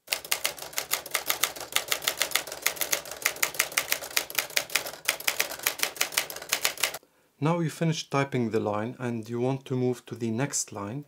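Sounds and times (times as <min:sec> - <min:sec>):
manual typewriter typing: 0:00.0 - 0:07.0.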